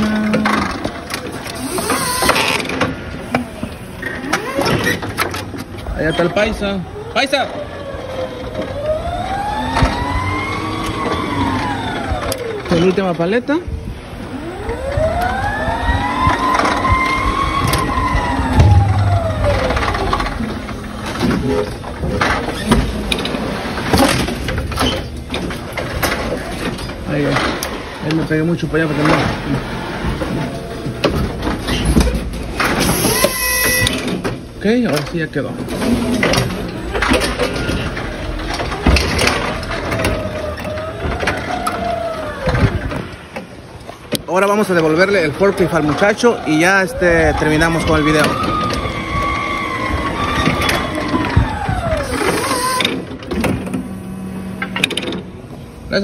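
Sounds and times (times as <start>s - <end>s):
clunks: 0.0s - 6.7s, 14.1s - 44.3s
forklift motor whining: 0.0s - 56.0s
faint machine whine: 5.9s - 22.4s
forklift mast clunks: 17.6s - 27.7s
heavy thump: 18.5s - 20.8s.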